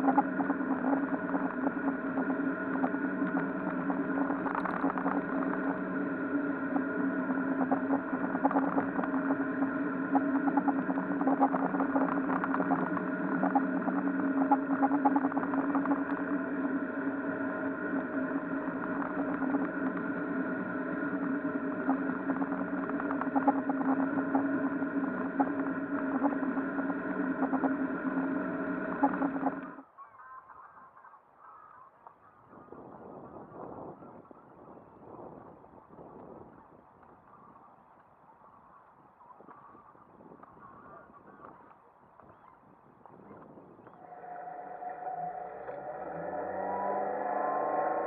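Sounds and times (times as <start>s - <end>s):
boat engine running steadily: 0.0s - 29.8s.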